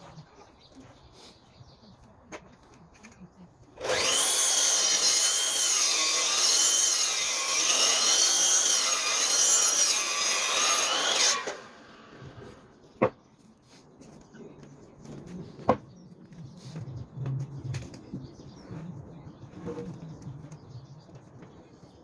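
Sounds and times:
mitre saw cutting wood: 3.8s - 12.7s.

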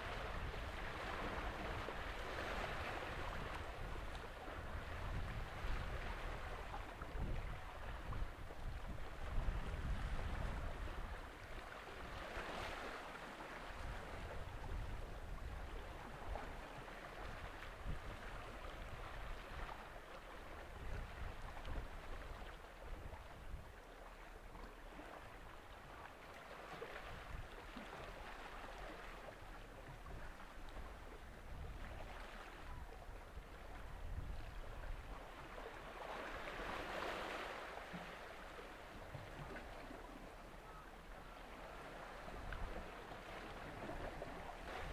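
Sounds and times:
wind on microphone: 0.0s - 23.8s, 26.8s - 38.0s, 39.0s - 44.9s
waves washing: 34.6s - 44.9s.

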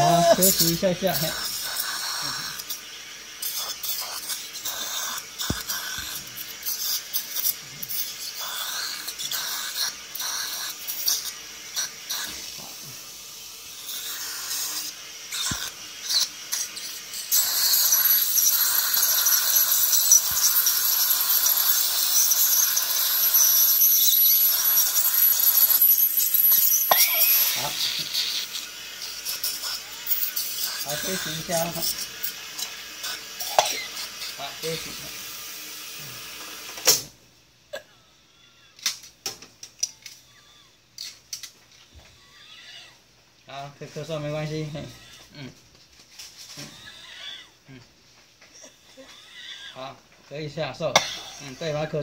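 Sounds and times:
suction slurping: 0.0s - 36.7s
dental scaler high-pitched whine: 0.0s - 37.0s, 39.8s - 45.5s, 49.0s - 52.0s
saliva suction tube hiss: 0.0s - 37.1s.

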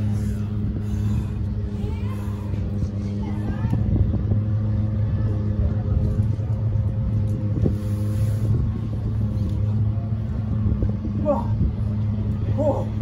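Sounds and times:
engine humming steadily: 0.0s - 13.0s.

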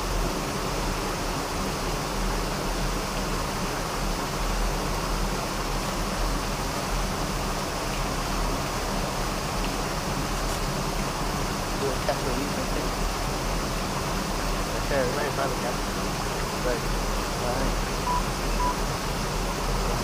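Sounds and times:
steady rushing noise: 0.0s - 20.0s.

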